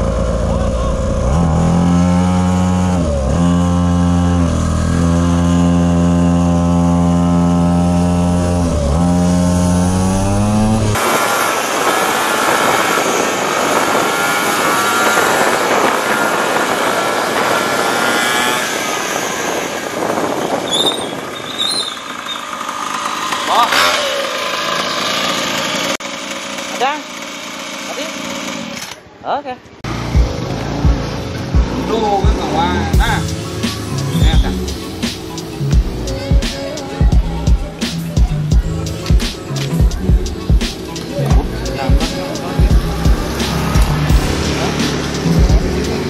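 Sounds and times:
small single-cylinder engine running: 0.0s - 20.7s, 21.3s - 29.0s
motorcycle engine: 0.0s - 46.0s
wind rush: 9.8s - 22.2s.

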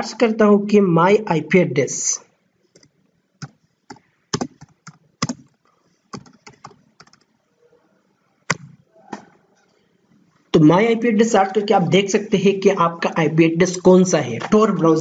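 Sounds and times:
computer keyboard typing: 2.7s - 7.3s.

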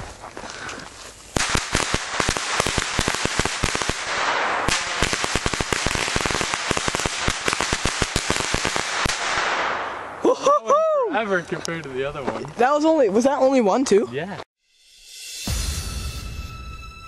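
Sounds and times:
firecrackers banging: 1.3s - 10.2s.

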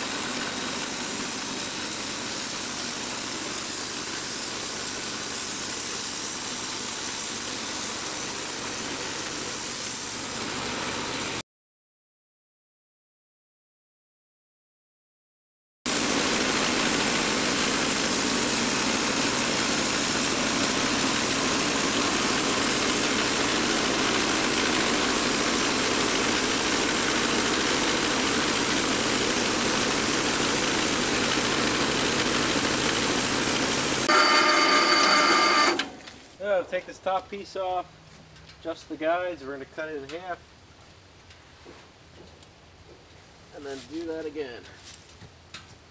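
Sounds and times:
band sawmill sawing log: 0.0s - 9.6s, 16.0s - 35.9s.

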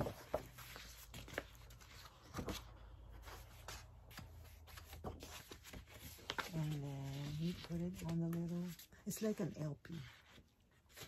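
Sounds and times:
paper and cardboard rustling: 0.0s - 11.0s.

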